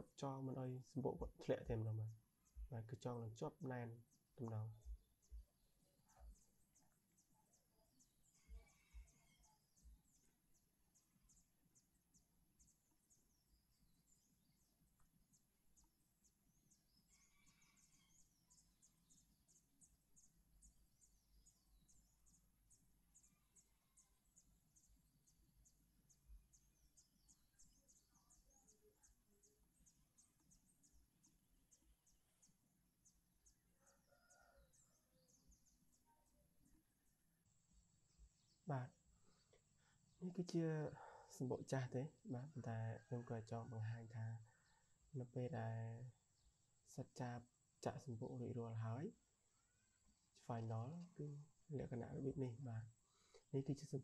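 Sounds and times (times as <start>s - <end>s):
faint bird calls: 0.0s - 15.1s, 15.8s - 32.5s.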